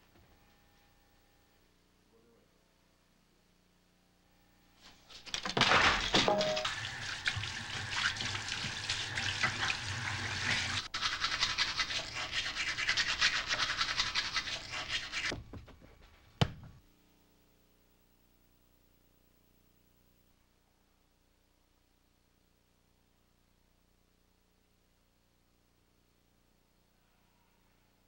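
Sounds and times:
toothbrush scrubbing teeth: 6.5 - 15.3.

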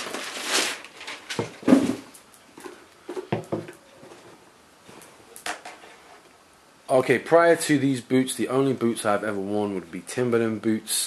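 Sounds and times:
packing paper rustling: 0.0 - 2.2.

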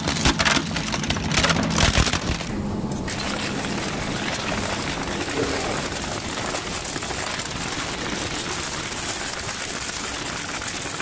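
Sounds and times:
industrial shredder scraping and rattling: 0.0 - 11.0.

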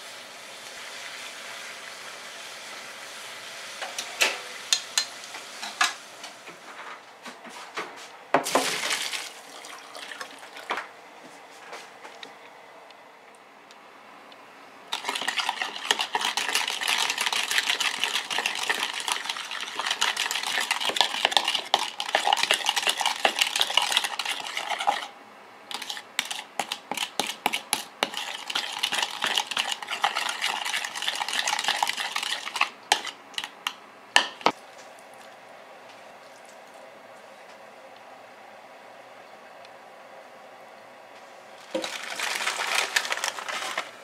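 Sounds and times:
spoon stirring in a bowl: 14.9 - 25.1, 25.7 - 34.5.

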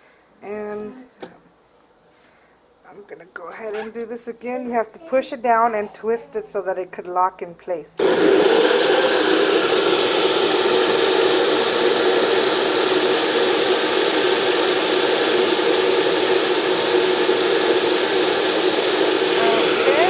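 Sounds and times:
blender motor running: 8.0 - 20.0.

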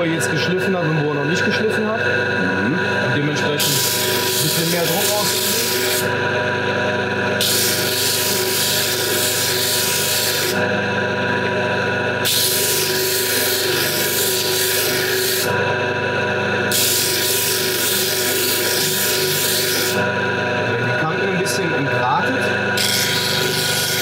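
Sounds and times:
disc sander humming: 0.0 - 24.0
metal grinding with loud hiss: 3.4 - 6.2, 7.4 - 10.7, 12.2 - 15.6, 16.7 - 20.1, 22.8 - 24.0.

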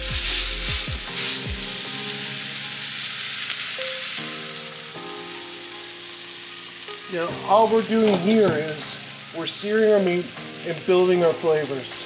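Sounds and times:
meat sizzling in a skillet: 0.0 - 12.0.

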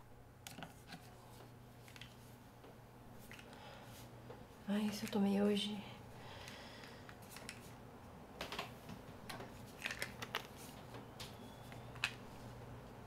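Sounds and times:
plastic pill bottles clicking: 6.4 - 7.7, 9.7 - 10.6, 11.7 - 12.2.

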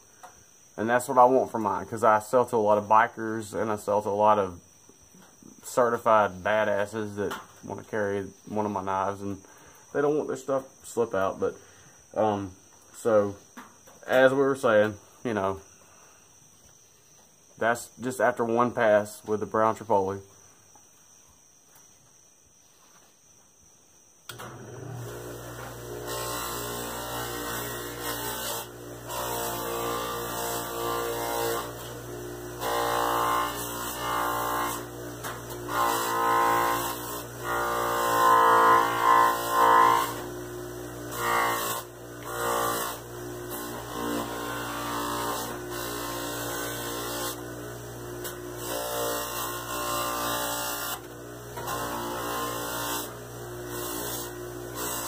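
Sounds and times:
bench buffer humming and whining: 24.3 - 55.0.

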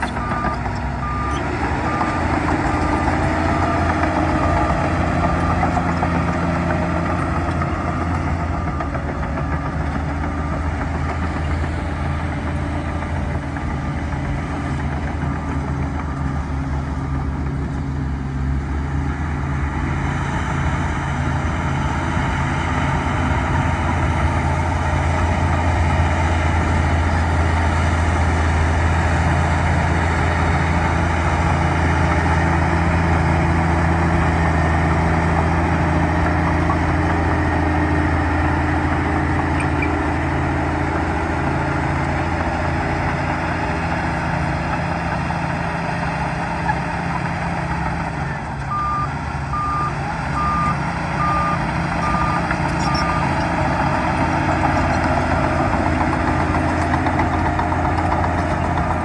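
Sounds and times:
reversing alarm beeping: 0.0 - 11.5, 48.7 - 53.4
bulldozer diesel engine droning: 0.0 - 59.0.

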